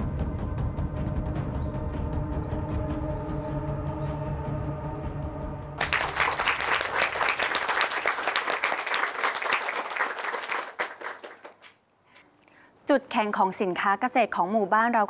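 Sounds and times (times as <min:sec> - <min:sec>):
drama score held notes: 0:00.0 - 0:07.0
small group applauding: 0:05.8 - 0:11.8.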